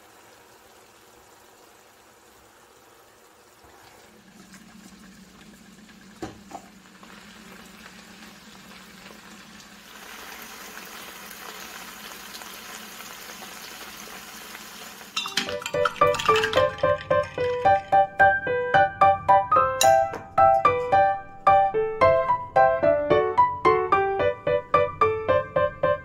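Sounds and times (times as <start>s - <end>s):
pasta sizzling in a pot: 0.0s - 18.3s
gentle piano music: 15.2s - 26.0s.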